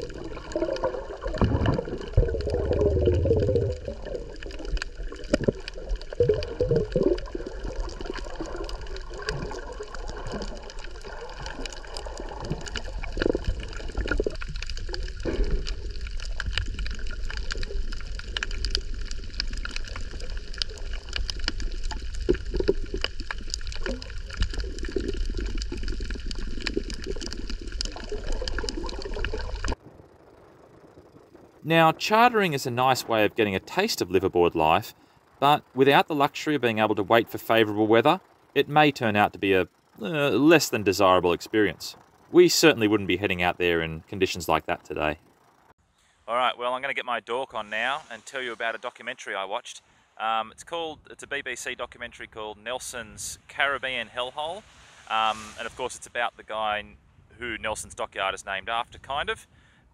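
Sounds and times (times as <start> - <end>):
low rumbling water surge: 0.0 - 34.1, 53.4 - 56.5
underwater water gurgling: 0.0 - 45.7
small clicks and crackles: 0.0 - 45.8.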